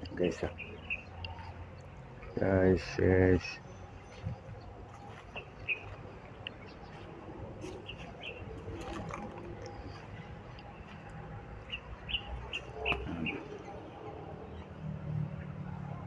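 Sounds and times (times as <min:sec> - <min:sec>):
low outdoor rumble: 0:00.0 - 0:16.0
high bird chirps: 0:11.6 - 0:14.6.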